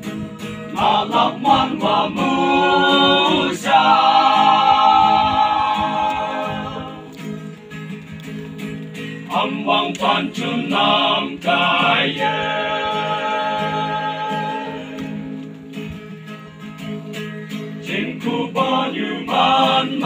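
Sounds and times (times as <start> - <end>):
guitar accompaniment: 0.0 - 20.0
young men singing together: 0.7 - 7.2, 9.3 - 15.3, 17.8 - 20.0.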